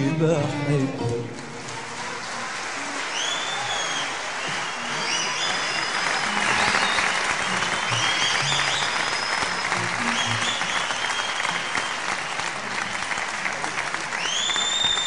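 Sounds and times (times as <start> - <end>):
audience clapping: 0.0 - 15.0
high whistles: 3.1 - 12.0, 14.2 - 15.0.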